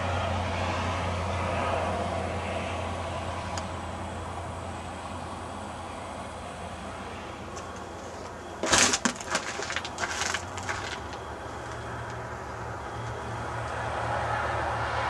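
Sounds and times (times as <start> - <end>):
ice crust crackling and snapping: 7.6 - 12.2.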